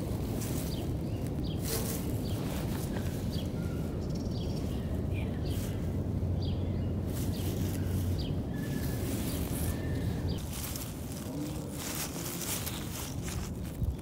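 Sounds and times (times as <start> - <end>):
small birds chirping: 0.0 - 14.0
steady low rumble: 0.0 - 14.0.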